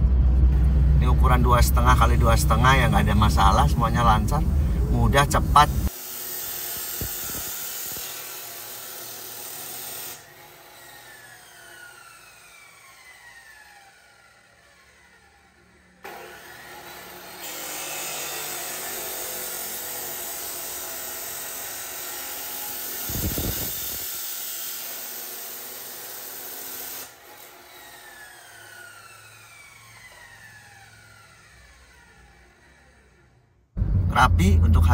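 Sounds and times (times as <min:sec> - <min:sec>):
motor winding down whine: 0:00.0 - 0:08.3, 0:10.0 - 0:17.3, 0:22.9 - 0:24.2, 0:27.7 - 0:34.9
cut-off saw grinding steel: 0:05.4 - 0:33.5
loud low thump: 0:33.8 - 0:34.9.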